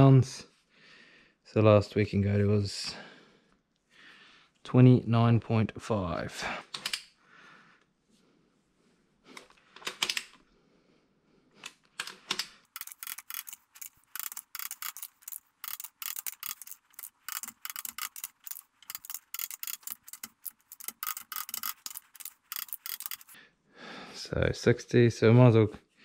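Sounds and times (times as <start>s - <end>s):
torque wrench ratchet clicking: 12.7s - 23.4s.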